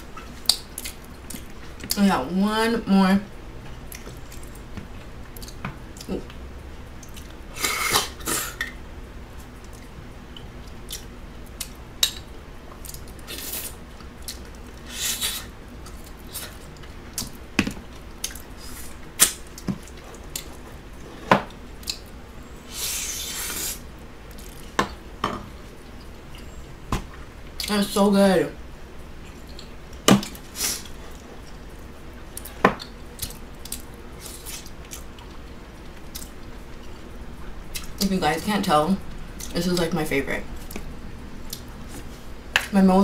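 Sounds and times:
wet chewing and mouth noises: 0.2 - 2.0, 3.9 - 6.4, 7.0 - 8.0, 9.5 - 17.4, 18.0 - 20.7, 29.3 - 37.0, 37.7 - 38.1, 40.6 - 42.2.

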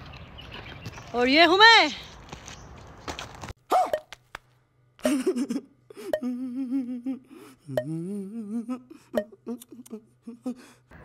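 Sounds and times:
man fake crying: 5.0 - 10.9.

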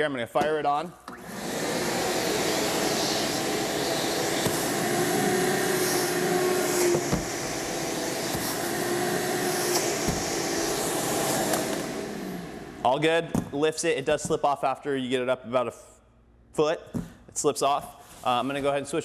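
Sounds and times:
shop vacuum running: 1.1 - 13.5
rushing airflow: 1.3 - 12.8.

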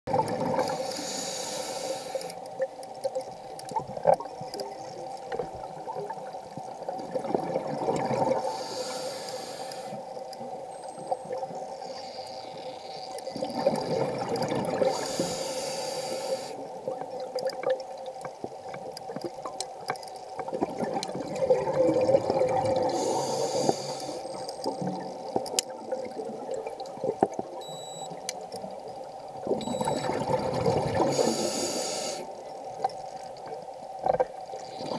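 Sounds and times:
faint steady hum: 0.1 - 34.9
scuba regulator breathing hiss: 0.6 - 2.4, 8.4 - 10.0, 14.8 - 16.6, 22.8 - 24.4, 31.1 - 32.4
exhaled bubbles rushing: 6.8 - 8.4, 13.4 - 15.0, 20.5 - 23.2, 29.4 - 31.3.

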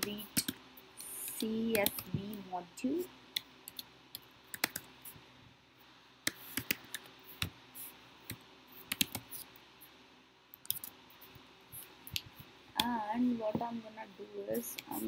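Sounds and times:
keyboard typing: 0.0 - 2.4, 3.4 - 4.9, 6.3 - 7.5, 8.2 - 9.5, 10.6 - 11.0.

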